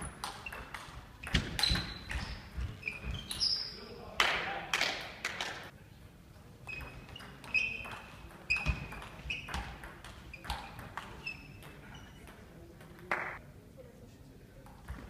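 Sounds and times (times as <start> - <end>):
table tennis ball hits: 0.0 - 2.4, 6.8 - 11.8.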